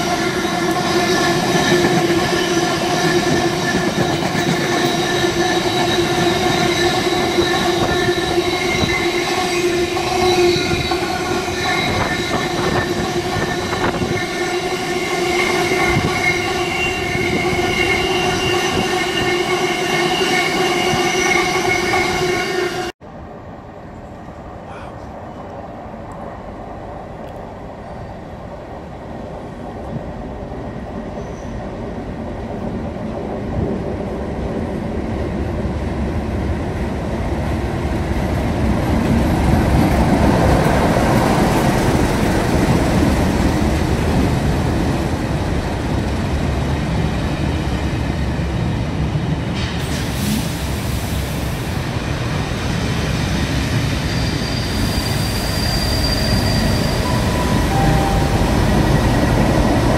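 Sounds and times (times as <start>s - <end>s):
high wheel squeal: 0.0s - 22.9s, 53.8s - 59.5s
wheels rumbling on rail: 0.0s - 59.9s.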